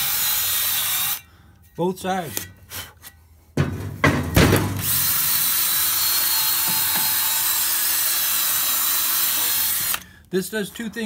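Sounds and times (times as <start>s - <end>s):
drill motor hum: 4.8s - 10.0s.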